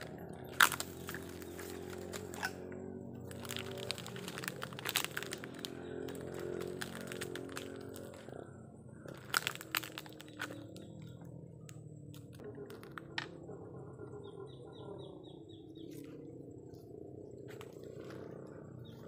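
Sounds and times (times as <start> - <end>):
dry fronds crunching underfoot: 0.0 - 11.2.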